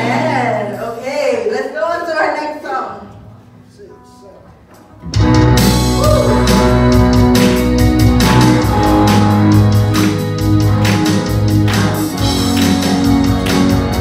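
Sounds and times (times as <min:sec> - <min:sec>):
keyboard chords: 0:03.2 - 0:14.0
electric guitar: 0:04.8 - 0:14.0
low bass: 0:05.2 - 0:14.0.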